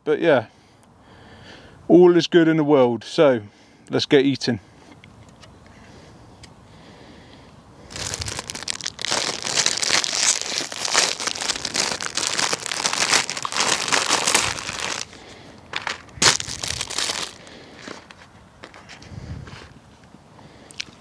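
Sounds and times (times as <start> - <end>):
plastic packet crinkling: 7.9 - 17.5.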